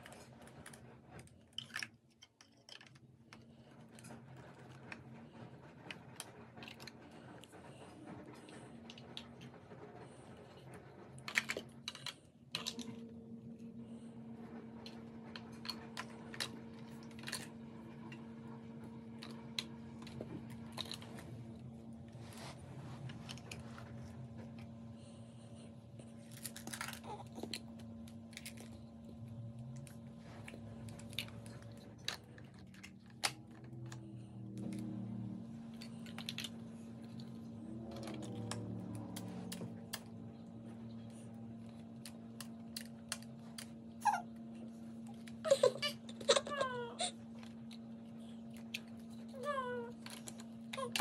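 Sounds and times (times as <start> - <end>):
faint steady hum: 0.0 - 51.0
plastic blocks clicking and clacking: 0.4 - 5.0, 11.2 - 13.0.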